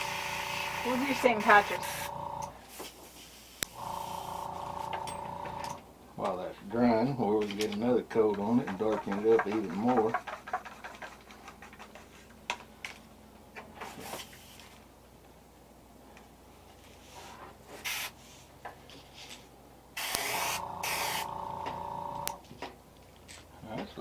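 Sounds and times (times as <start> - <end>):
airbrush spraying hissing bursts: 2.7 - 4.5, 17.8 - 18.2, 20.0 - 21.3.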